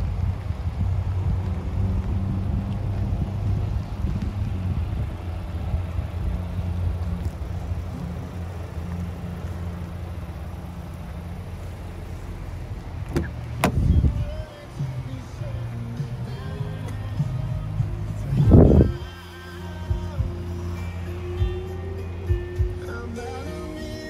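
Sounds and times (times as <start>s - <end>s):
car engine idling: 0.0s - 24.0s
car door opening click: 13.0s - 14.1s.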